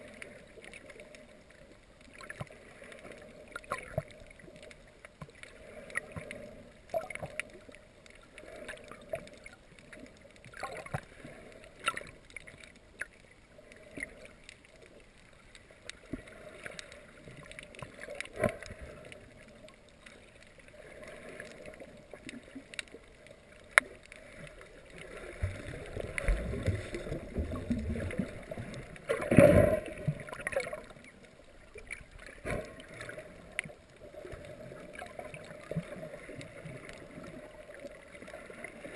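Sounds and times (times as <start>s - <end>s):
gurgling water rush: 16.1s - 38.9s.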